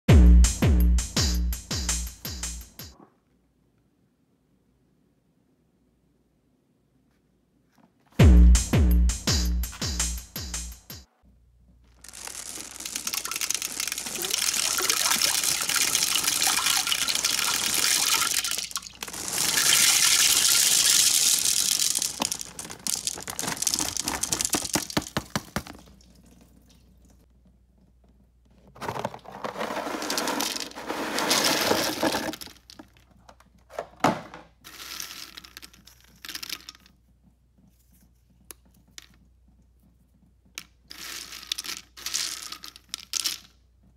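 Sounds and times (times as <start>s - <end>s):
candy and biscuits rattling into bowl: 11.9s - 25.8s, 28.8s - 33.0s, 34.7s - 36.9s, 40.9s - 43.6s.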